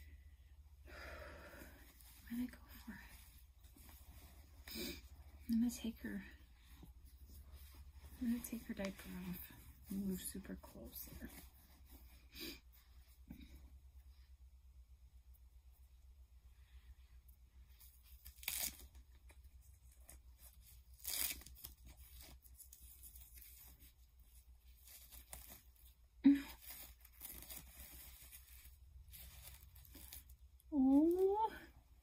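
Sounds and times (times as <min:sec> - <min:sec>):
rustling: 0:01.3 - 0:14.4, 0:16.8 - 0:32.0
diaper tabs tearing open: 0:18.1 - 0:19.3, 0:20.7 - 0:23.7.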